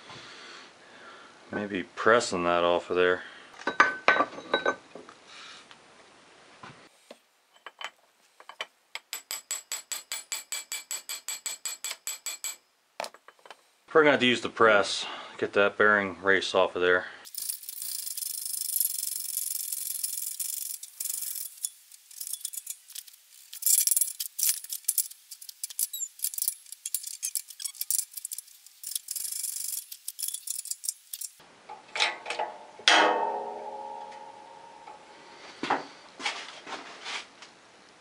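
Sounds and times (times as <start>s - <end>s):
steel parts clinking and rattling: 7.5s - 13.6s, 17.3s - 33.0s
sharp metal clank: 9.0s - 12.7s, 32.0s - 35.0s.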